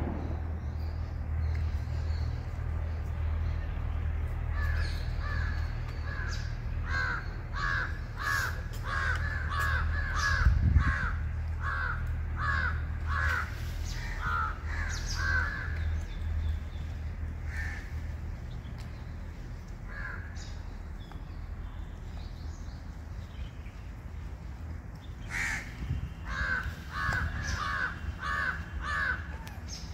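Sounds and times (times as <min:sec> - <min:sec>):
steady low rumble: 0:00.0 - 0:29.9
crow cawing: 0:04.5 - 0:15.8, 0:17.4 - 0:18.0, 0:19.9 - 0:20.4, 0:25.3 - 0:29.5.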